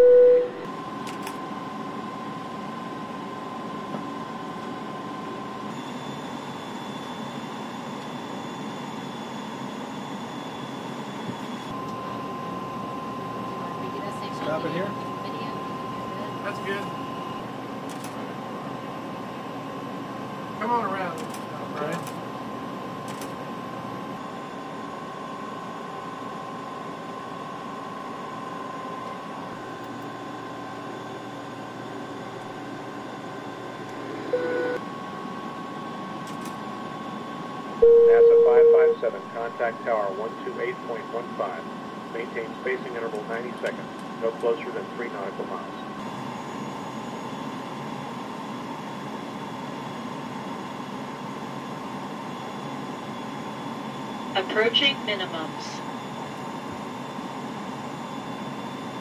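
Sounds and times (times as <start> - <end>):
short electronic tone: 0.0 - 0.6, 37.8 - 39.0
faint high whine: 0.0 - 0.8, 3.7 - 18.2, 24.0 - 59.0.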